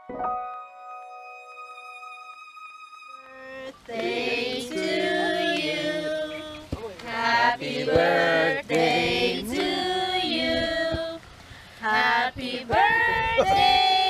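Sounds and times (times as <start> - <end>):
group singing held notes: 3.6 - 14.0.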